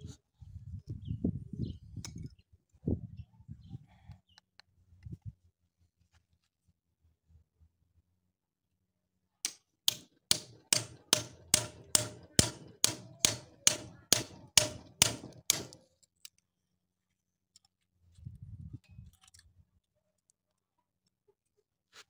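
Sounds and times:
hammer knocking on knife blade: 0:09.9 - 0:15.8.

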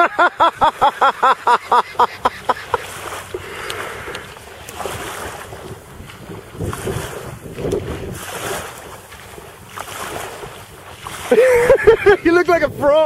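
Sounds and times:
person laughing: 0:00.0 - 0:03.0, 0:11.3 - 0:12.4
water: 0:00.0 - 0:13.0
wind: 0:00.0 - 0:13.0.

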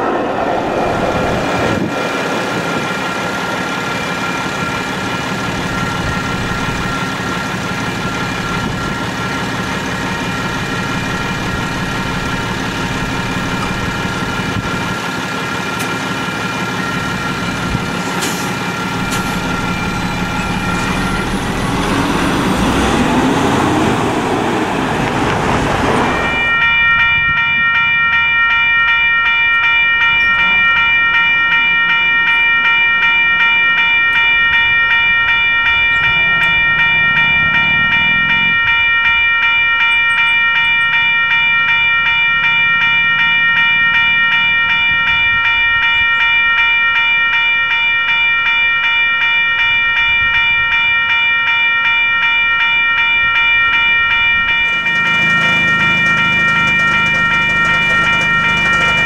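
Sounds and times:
railroad crossing bell dinging: 0:00.0 - 0:59.0.

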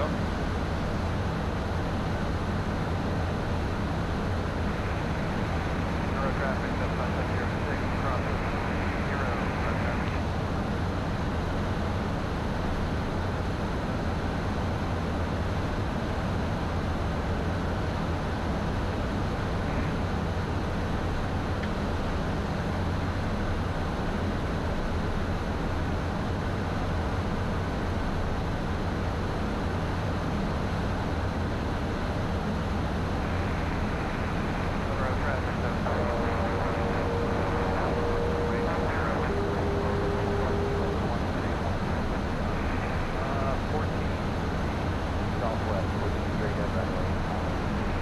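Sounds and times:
jet engines humming: 0:00.0 - 0:48.0
rush of airflow: 0:30.8 - 0:45.4.

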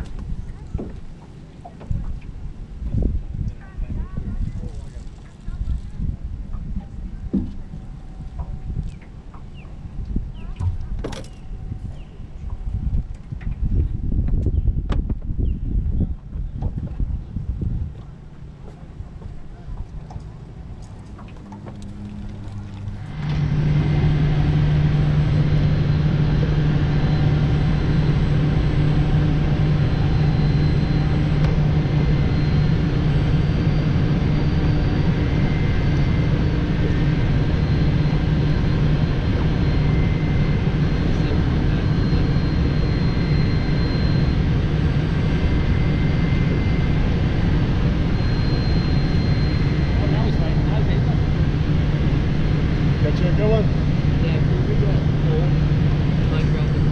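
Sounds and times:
loud mechanical drone: 0:00.0 - 0:56.9
faint high whining tones: 0:18.0 - 0:56.9.

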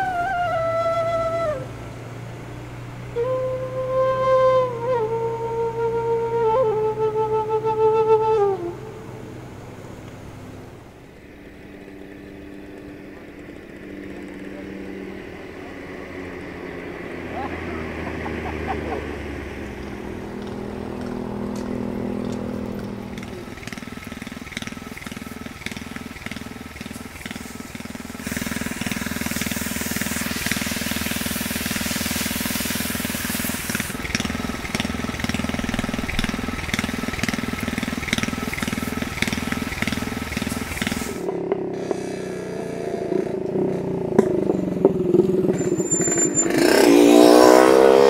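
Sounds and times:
pulsing sprayer pump engine: 0:06.7 - 0:41.5
loud hiss of spray: 0:26.8 - 0:41.3.

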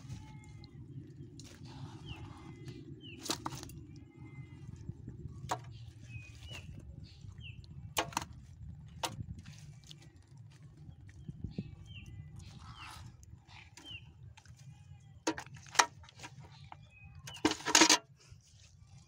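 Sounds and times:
steady low rumble: 0:00.0 - 0:17.4
hands working through wet mud: 0:00.0 - 0:19.0.

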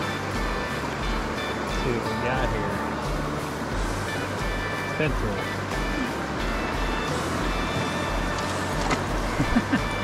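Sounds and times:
background music with bass beat: 0:00.0 - 0:10.0
constant rushing hiss: 0:00.0 - 0:10.0.

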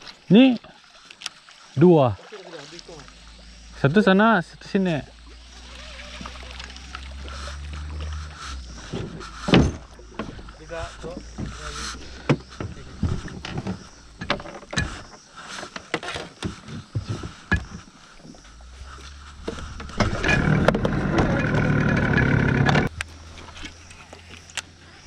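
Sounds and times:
knocks and clatter in boat: 0:06.2 - 0:22.9
loud whirring: 0:19.5 - 0:23.0.

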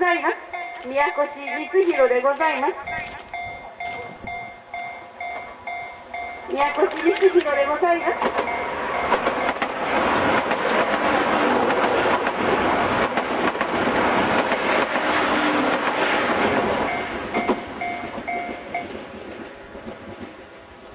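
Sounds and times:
train rumble: 0:00.0 - 0:20.9
short beeps: 0:00.5 - 0:07.4, 0:16.9 - 0:18.9
train wheels clicking over rail joints: 0:05.2 - 0:20.9.

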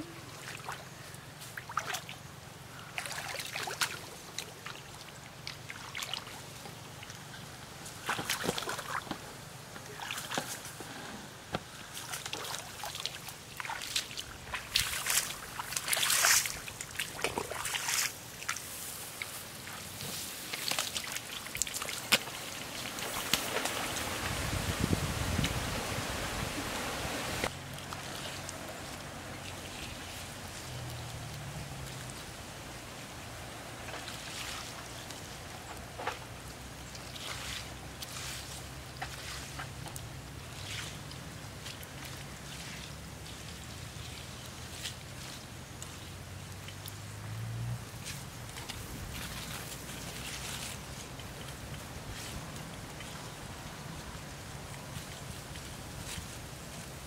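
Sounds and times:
water sloshing from wading: 0:00.0 - 0:10.9, 0:11.6 - 0:32.4, 0:33.5 - 0:56.9
plants brushing: 0:13.6 - 0:31.4, 0:37.1 - 0:39.6, 0:48.0 - 0:54.1.

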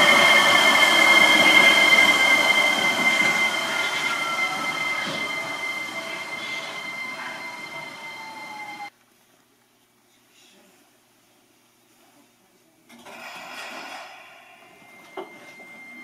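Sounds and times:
high-pitched squeal: 0:00.0 - 0:08.9
train running past: 0:00.0 - 0:08.9
whine falling in pitch: 0:00.0 - 0:08.9.

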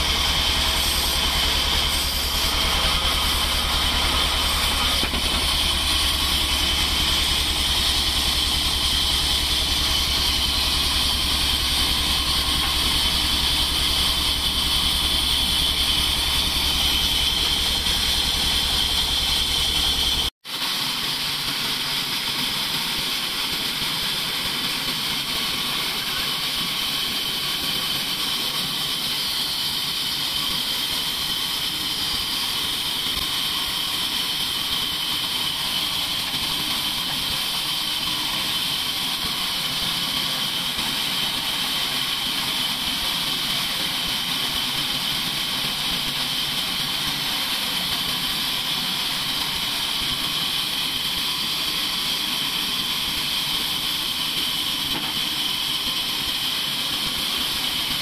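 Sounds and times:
band saw whining: 0:00.0 - 0:20.3.

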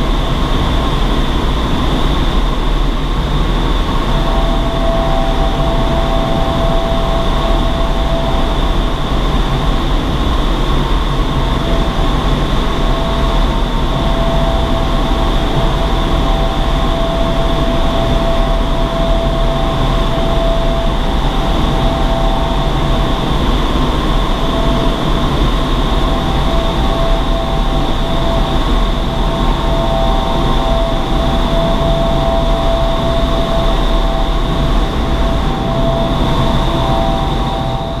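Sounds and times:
fans whining: 0:00.0 - 0:38.0
loud rush of air: 0:00.0 - 0:38.0.

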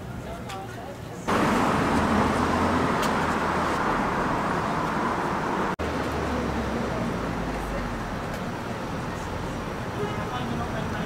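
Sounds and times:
vehicle passing close: 0:01.3 - 0:07.8.

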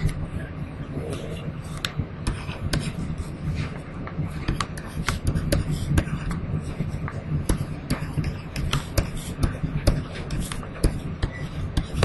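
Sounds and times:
steady low hum: 0:00.0 - 0:12.0
stylus tapping on a pen tablet: 0:04.4 - 0:06.4, 0:07.0 - 0:12.0.

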